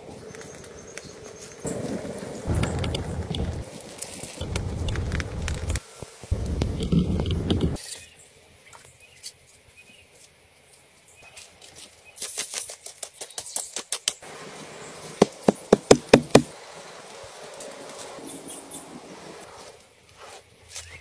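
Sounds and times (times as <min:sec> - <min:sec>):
quick taps and scrapes: 0:15.2 - 0:16.5
sharp knocks: 0:15.2 - 0:16.5.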